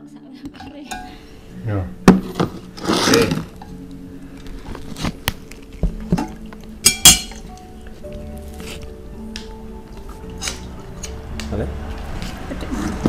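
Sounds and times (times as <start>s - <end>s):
soft background music: 0.0s - 13.0s
plates and utensils clinking: 5.8s - 7.7s.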